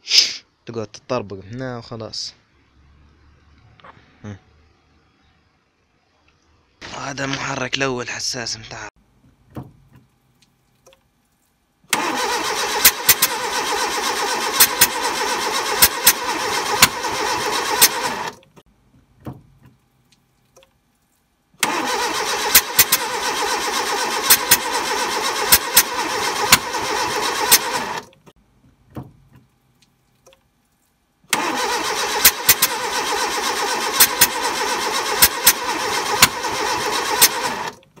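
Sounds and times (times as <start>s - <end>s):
car engine cranking: 11.9s - 18.6s, 21.6s - 29.4s, 31.3s - 38.0s.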